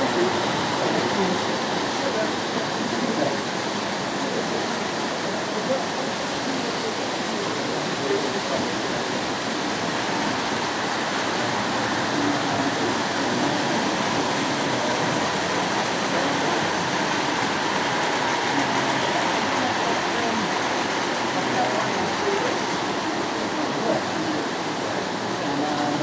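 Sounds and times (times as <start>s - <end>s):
indistinct voices talking: 0.0s - 26.0s
rushing hall noise: 0.0s - 26.0s.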